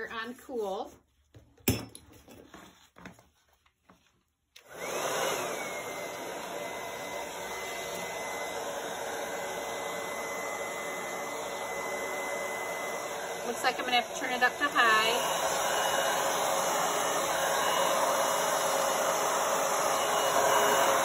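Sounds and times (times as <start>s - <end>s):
hair dryer blowing: 4.6s - 21.0s.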